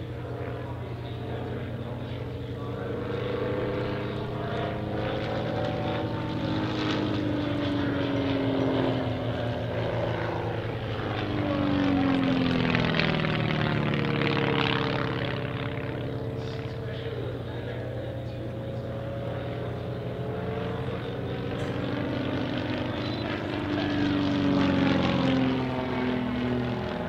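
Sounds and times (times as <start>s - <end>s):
plane engine and propeller: 0.0s - 27.0s.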